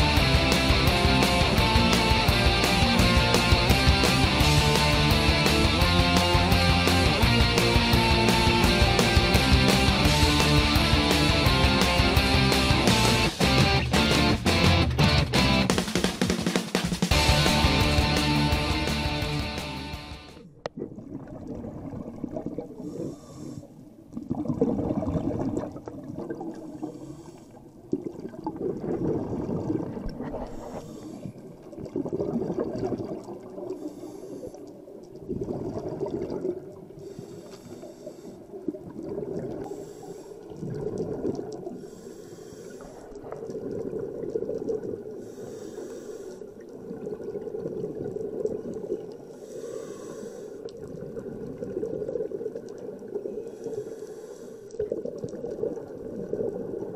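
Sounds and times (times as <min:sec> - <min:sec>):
burbling exhaled bubbles: 0:20.4 - 0:33.8, 0:34.5 - 0:37.2, 0:38.5 - 0:39.8, 0:40.4 - 0:41.9, 0:42.8 - 0:45.4, 0:46.4 - 0:53.8, 0:54.7 - 0:56.9.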